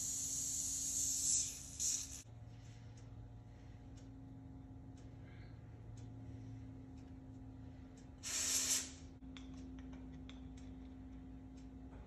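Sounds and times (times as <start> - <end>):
aerosol spray can hissing: 0.0 - 2.2, 8.2 - 9.0.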